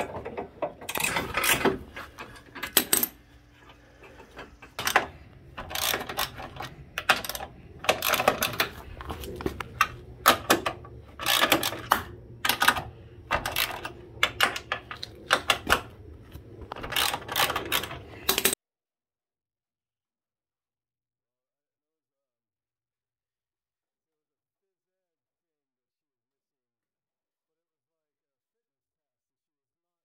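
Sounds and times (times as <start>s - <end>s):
ratchet clicking: 4.8s - 8.7s, 9.8s - 14.4s.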